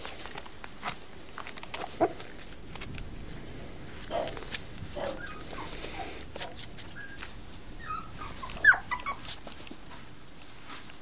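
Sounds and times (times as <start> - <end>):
puppy whining in squeaks: 5.0 - 6.1, 6.7 - 9.8.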